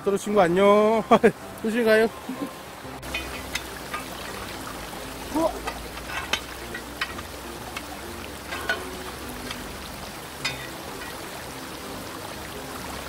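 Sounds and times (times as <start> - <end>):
stream rushing over rocks: 0.0 - 13.0
knocks and splashes among stones: 3.0 - 11.4.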